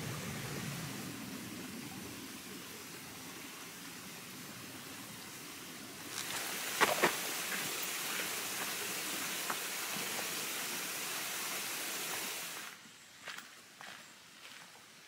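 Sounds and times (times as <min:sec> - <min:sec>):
creek rushing: 0:00.0 - 0:12.8
footfalls on trail: 0:06.1 - 0:08.8.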